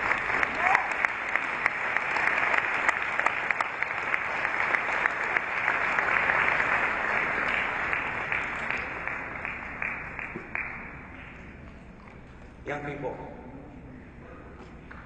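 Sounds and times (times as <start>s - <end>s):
audience applauding: 0.0s - 11.5s.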